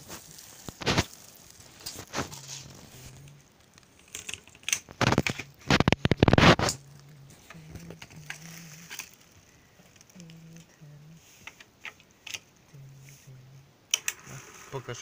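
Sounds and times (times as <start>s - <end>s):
plastic reel rustling and clattering: 0.0s - 10.3s
rapid crackling clicks: 0.0s - 10.8s.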